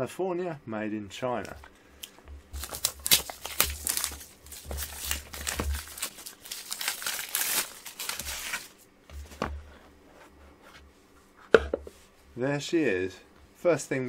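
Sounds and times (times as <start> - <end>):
plastic shrink-wrap tearing: 2.5 - 8.8.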